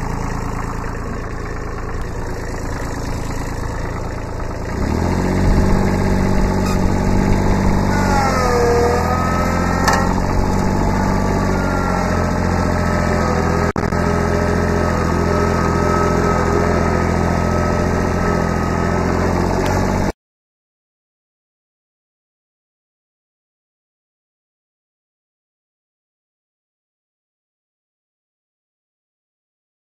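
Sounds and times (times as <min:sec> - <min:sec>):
high engine whine: 0:00.0 - 0:20.1
tractor diesel engine running: 0:00.0 - 0:20.1.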